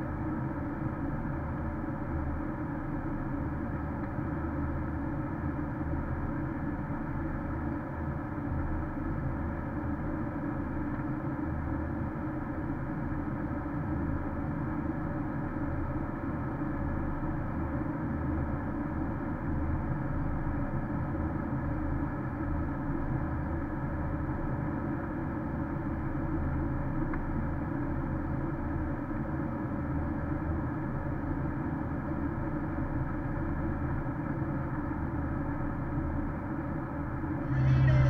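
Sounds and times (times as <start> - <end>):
car cabin road and engine noise: 19.9 - 38.0.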